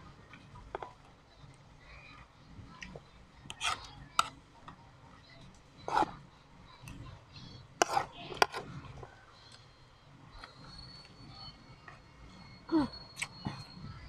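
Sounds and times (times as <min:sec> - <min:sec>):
metal spoon scraping ceramic plate: 0:03.5 - 0:04.3, 0:05.9 - 0:06.1, 0:07.8 - 0:08.6.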